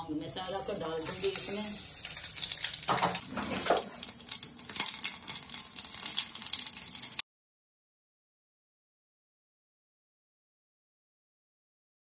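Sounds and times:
spices sizzling in hot oil: 0:00.4 - 0:07.2.

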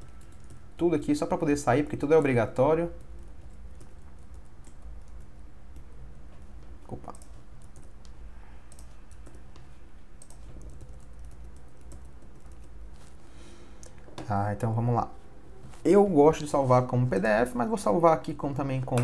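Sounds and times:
typing on keyboard: 0:00.0 - 0:00.6, 0:02.0 - 0:09.5, 0:10.2 - 0:12.8
low steady hum: 0:00.0 - 0:19.0.

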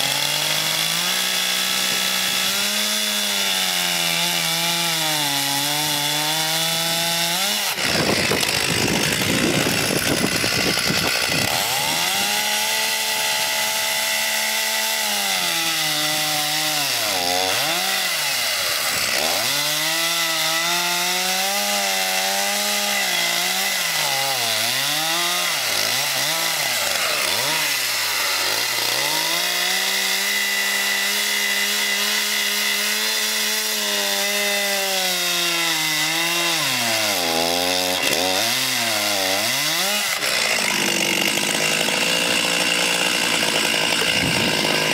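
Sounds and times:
chainsaw cutting a log: 0:00.0 - 0:44.9.

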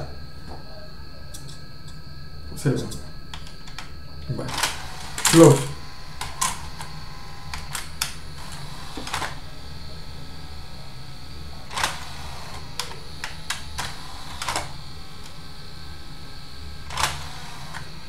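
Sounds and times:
steady low hum: 0:00.0 - 0:18.0
disc player mechanism clicks: 0:06.2 - 0:09.4, 0:11.7 - 0:15.4, 0:16.9 - 0:17.9.

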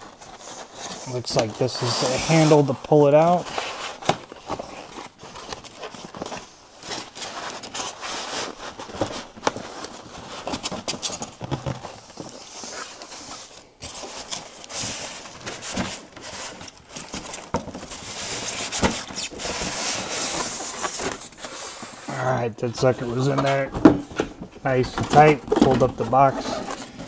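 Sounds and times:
foam scraping against cardboard: 0:00.4 - 0:04.0, 0:18.0 - 0:23.7.

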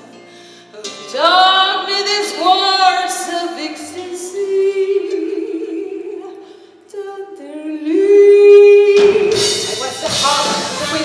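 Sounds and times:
band playing: 0:08.7 - 0:11.0.

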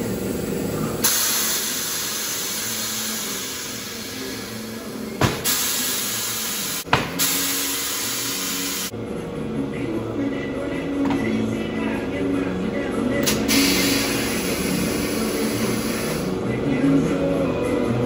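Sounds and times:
compressed air hissing: 0:00.0 - 0:08.9, 0:13.2 - 0:16.4.

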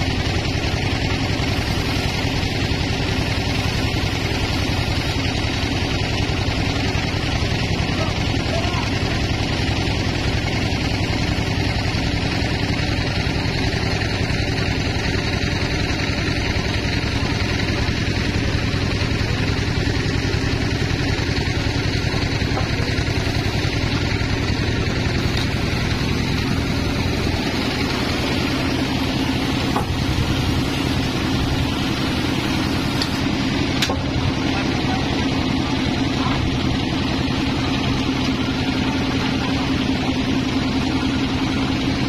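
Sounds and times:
band saw cutting wood: 0:21.7 - 0:36.5.

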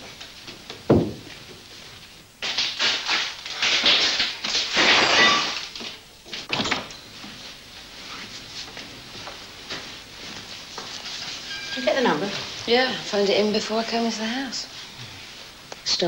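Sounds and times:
door thudding shut: 0:00.9 - 0:01.3.

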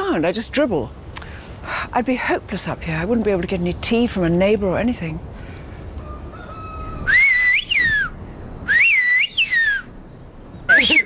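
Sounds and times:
whistled speech: 0:08.7 - 0:09.9, 0:10.7 - 0:11.0.

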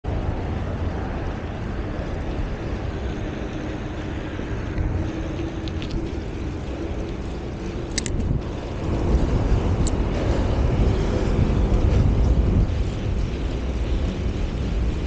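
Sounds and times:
bicycle tyre and road noise: 0:00.0 - 0:15.0
wind rumbling on microphone: 0:00.0 - 0:15.0.

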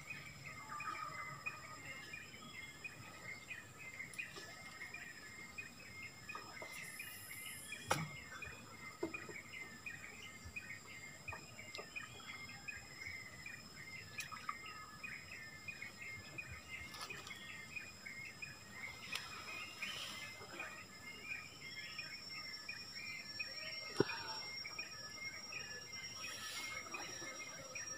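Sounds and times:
insects and birds chirping: 0:00.0 - 0:27.9
high-pitched insect drone: 0:17.9 - 0:27.9.

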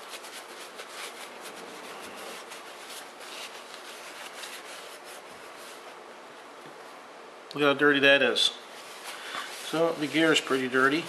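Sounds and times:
paper towel rubbing: 0:00.0 - 0:06.0, 0:08.7 - 0:11.0.

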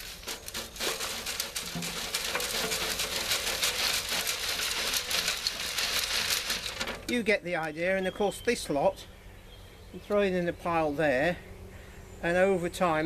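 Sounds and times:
soil rattling through a garden sieve: 0:00.0 - 0:09.0.

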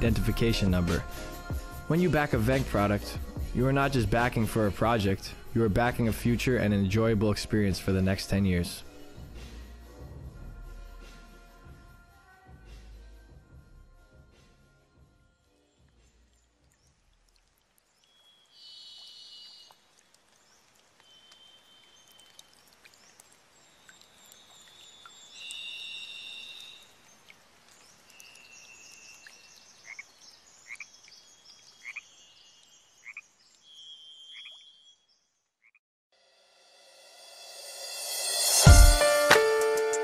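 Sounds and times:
frogs trilling: 0:18.1 - 0:20.2, 0:20.8 - 0:27.4, 0:28.0 - 0:34.8.

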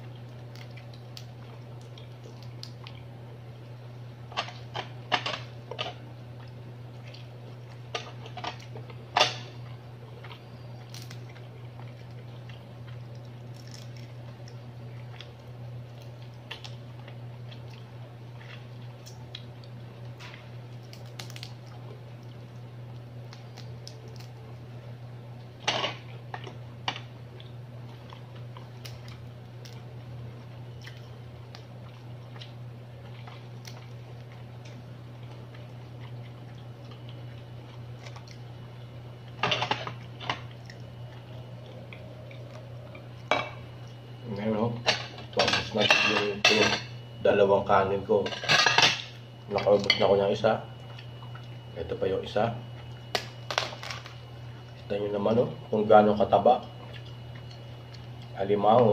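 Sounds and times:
wet squishing and chewing: 0:00.0 - 0:44.5, 0:49.1 - 0:51.8, 0:52.6 - 0:55.0, 0:56.5 - 0:58.4
steady low hum: 0:00.0 - 0:58.9
crab shell cracking: 0:00.2 - 0:03.1, 0:10.8 - 0:17.8, 0:18.5 - 0:24.7, 0:28.2 - 0:30.0, 0:52.8 - 0:54.7.

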